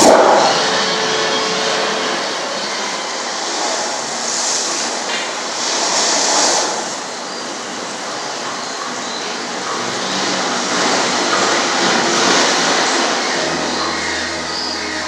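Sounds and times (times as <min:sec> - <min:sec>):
steady rushing noise: 0:00.0 - 0:08.3.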